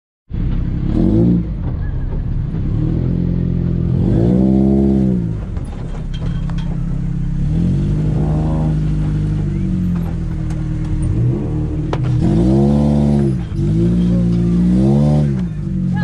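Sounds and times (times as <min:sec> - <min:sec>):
buggy engine revving: 0:00.3 - 0:16.0
rattles and knocks: 0:01.6 - 0:03.1, 0:05.2 - 0:15.8.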